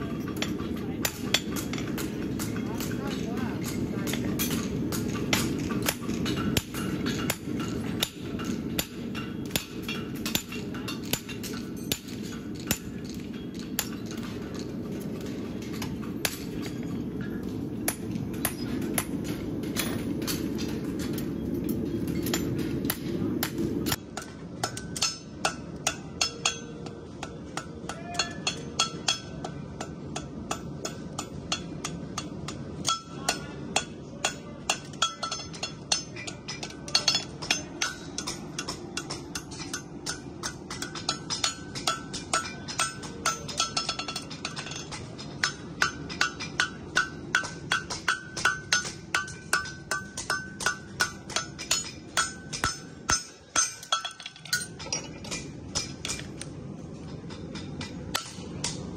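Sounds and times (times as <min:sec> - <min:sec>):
steady low background noise: 0:00.0 - 0:58.9
hammer ringing on steel: 0:24.2 - 0:56.3.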